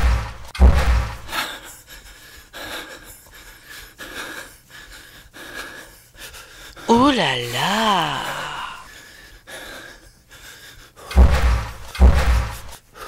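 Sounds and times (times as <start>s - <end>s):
soft breaths close to microphone: 1.3s - 6.8s, 8.9s - 11.8s.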